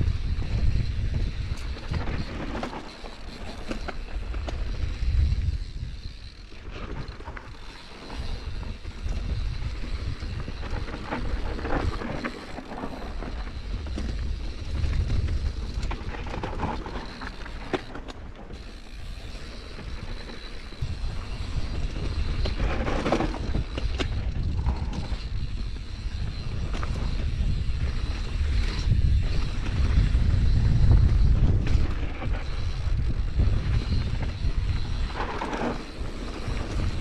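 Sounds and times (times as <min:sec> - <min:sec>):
wind buffeting microphone: 0:00.0 - 0:17.9, 0:18.5 - 0:37.0
bike rattling over stones: 0:00.0 - 0:37.0.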